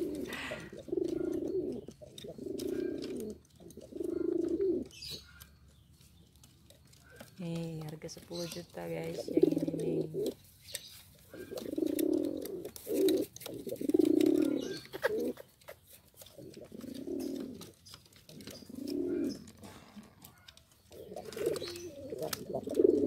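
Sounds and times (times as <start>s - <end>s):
pigeons cooing: 0.0s - 5.9s, 6.7s - 23.0s
light clicks and taps: 0.8s - 19.6s.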